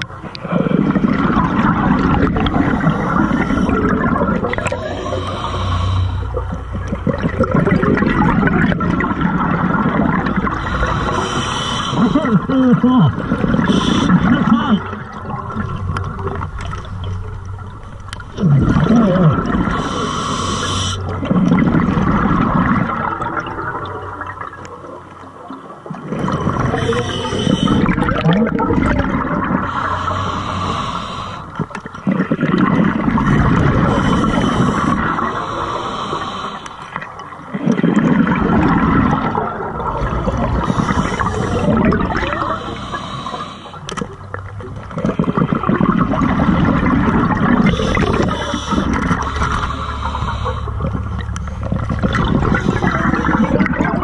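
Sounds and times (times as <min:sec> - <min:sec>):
exhaust bubbles rushing: 0:00.0 - 0:05.5, 0:06.2 - 0:11.3, 0:12.0 - 0:20.0, 0:21.0 - 0:24.7, 0:25.9 - 0:30.0, 0:31.5 - 0:35.6, 0:36.9 - 0:42.8, 0:44.2 - 0:54.0
regulator inhale hiss: 0:02.6 - 0:03.8, 0:04.7 - 0:06.3, 0:10.6 - 0:12.2, 0:13.6 - 0:14.2, 0:19.7 - 0:21.1, 0:26.7 - 0:27.9, 0:29.7 - 0:31.6, 0:33.8 - 0:37.0, 0:40.6 - 0:41.8, 0:42.4 - 0:43.9, 0:47.7 - 0:51.0.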